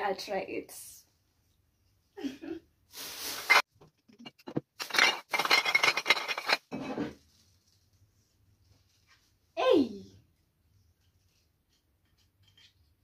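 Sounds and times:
rustling of household items: 2.9 - 9.6.

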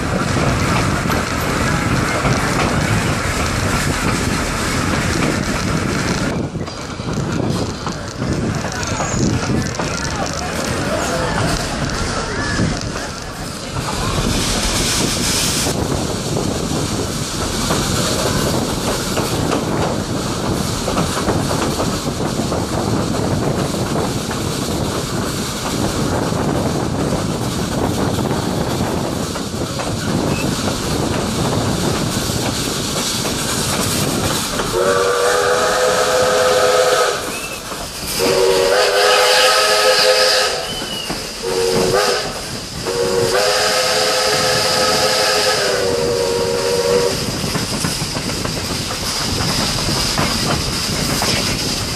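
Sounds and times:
train rumble and rail noise: 0.0 - 51.9
steam locomotive whistle: 34.7 - 47.3.

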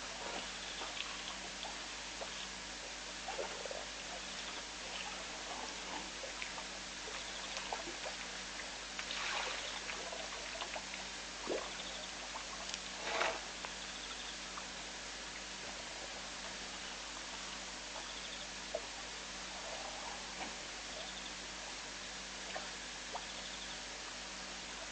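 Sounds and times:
steady hiss: 0.0 - 24.9
faint chirping: 7.1 - 7.9, 11.6 - 12.2, 16.7 - 18.8, 20.9 - 21.4, 23.2 - 23.9.

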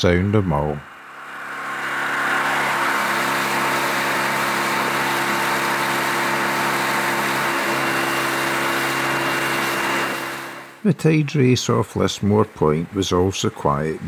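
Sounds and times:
outboard motor running: 1.0 - 10.8.

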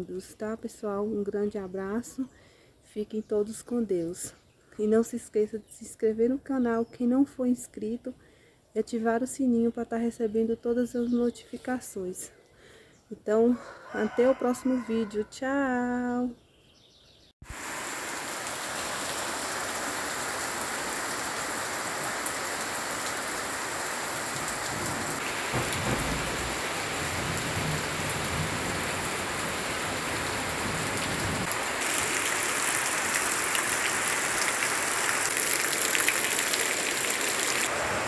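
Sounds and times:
heavy rain pouring: 17.4 - 38.0.

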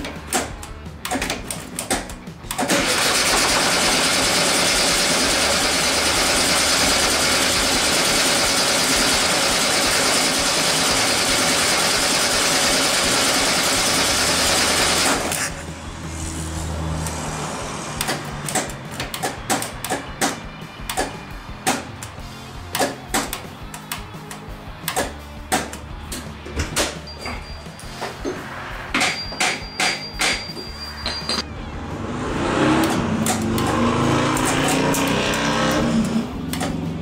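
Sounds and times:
car engine running: 2.1 - 22.6, 31.5 - 37.0
clicks: 32.8 - 36.9.

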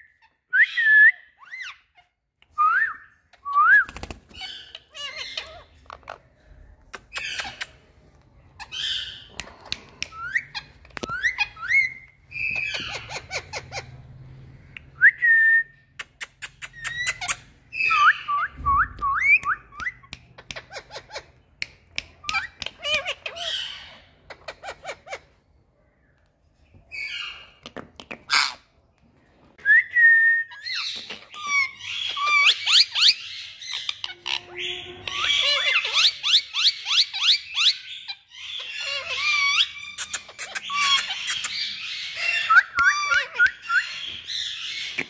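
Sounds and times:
parakeet calling: 4.3 - 6.3, 10.2 - 14.8, 22.2 - 25.5, 30.5 - 45.0.

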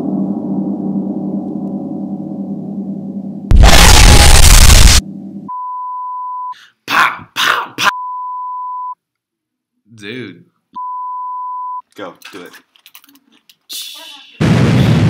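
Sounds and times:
short noisy bursts: 3.5 - 5.0
static hiss: 3.5 - 5.0.

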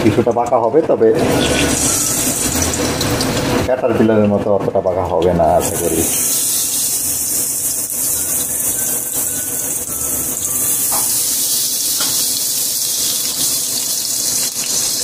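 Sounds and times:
shrimp sizzling in hot oil: 1.2 - 3.7, 5.6 - 15.0.

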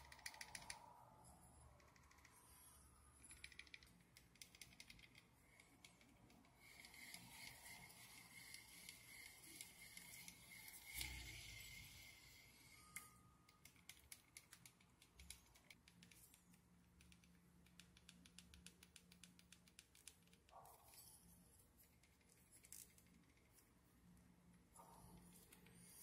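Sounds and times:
reel ticking: 5.8 - 14.0
fishing reel whirring: 6.6 - 13.1.

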